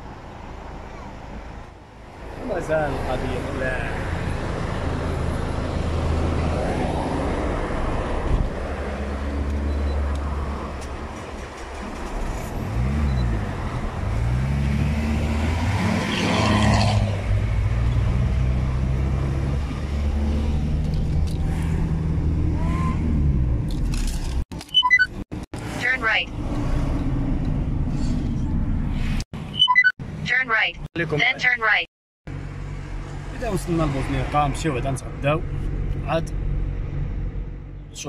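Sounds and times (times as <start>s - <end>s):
road and traffic noise: 0.0s - 38.0s.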